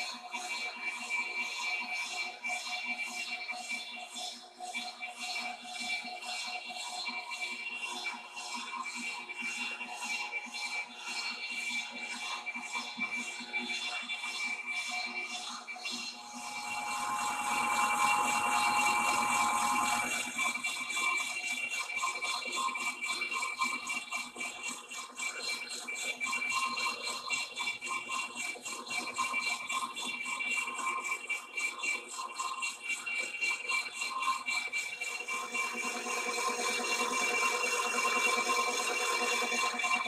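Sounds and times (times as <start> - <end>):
lathe rattling and whining: 16.1 - 22.1, 34.7 - 40.0.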